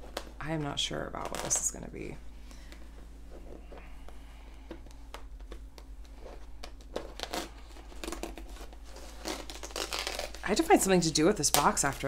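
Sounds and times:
cardboard tearing and rustling: 6.3s - 10.8s.

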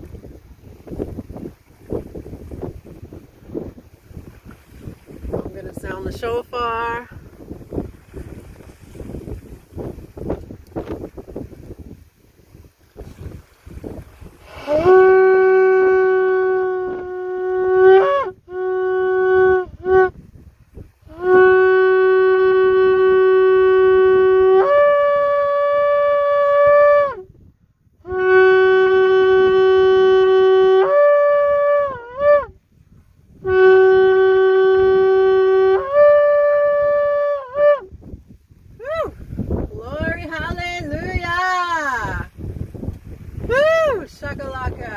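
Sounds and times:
ram's horn blasts: 14.4s - 20.2s, 21.1s - 27.1s, 28.0s - 32.5s, 33.4s - 37.9s.

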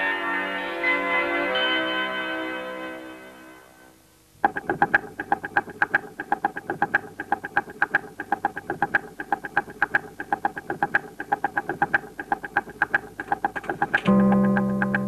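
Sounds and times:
clockwork ticking: 4.4s - 15.0s
bell tone: 14.1s - 15.0s.

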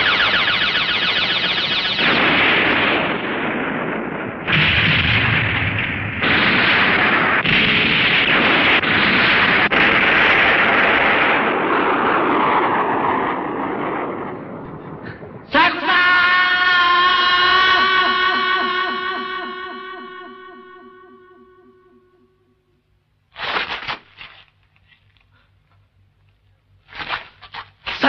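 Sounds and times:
loud explosion blasts: 0.0s - 15.6s.

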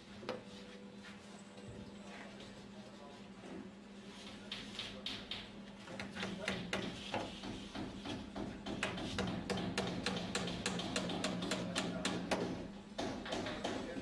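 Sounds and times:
hammer tapping a nail: 6.2s - 14.0s.

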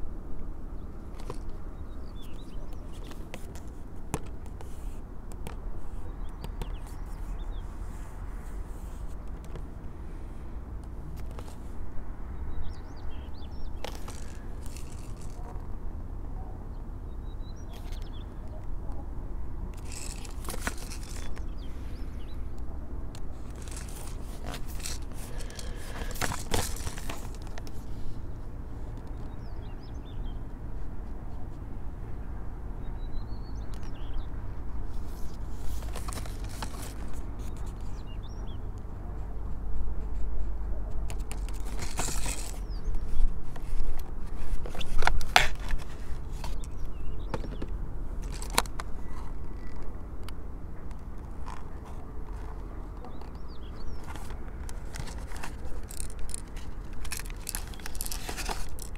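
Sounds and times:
cardboard box rubbing and scraping: 13.9s - 15.5s, 19.8s - 21.6s, 23.4s - 27.9s, 54.0s - 58.9s.

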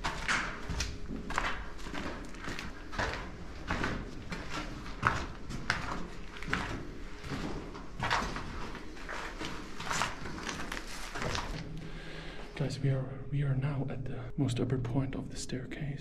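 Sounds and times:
footsteps on gritty concrete: 0.0s - 12.0s
hard breathing: 11.7s - 12.6s.

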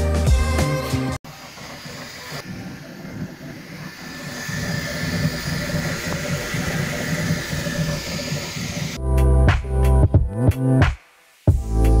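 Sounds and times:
printer motors buzzing: 1.3s - 9.0s.

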